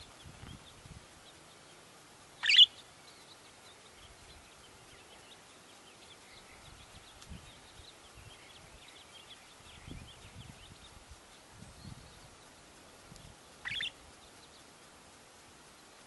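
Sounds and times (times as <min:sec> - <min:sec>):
faint bird twittering: 0:00.0 - 0:16.0
budgerigar high chirp: 0:02.4 - 0:02.8, 0:13.6 - 0:14.0.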